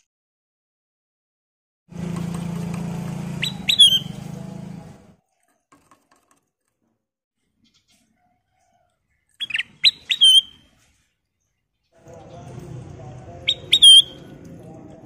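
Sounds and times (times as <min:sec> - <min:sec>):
bird chirping: 0:03.4 - 0:04.3, 0:07.5 - 0:14.7.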